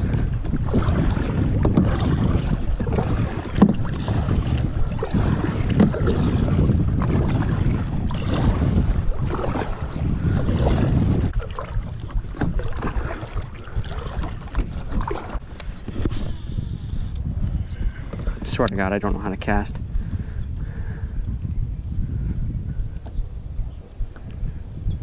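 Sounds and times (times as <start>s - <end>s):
kayak paddle splashing water: 0.0s - 16.7s
wind rumbling on microphone: 0.0s - 25.0s.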